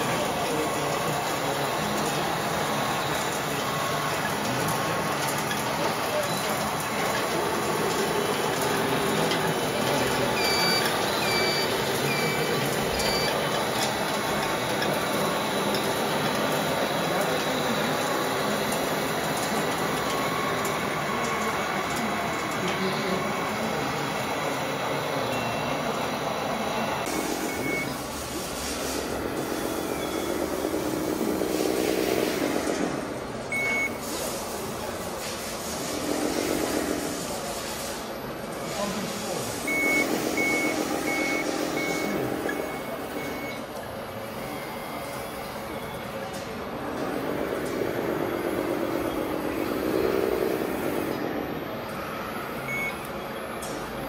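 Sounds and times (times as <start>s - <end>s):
din of running rc machines: 0.0s - 35.2s, 35.9s - 51.9s
reversing beeper beeps: 9.7s - 13.4s, 25.1s - 28.0s, 29.6s - 30.8s, 33.5s - 34.0s, 39.6s - 43.7s, 52.6s - 53.5s.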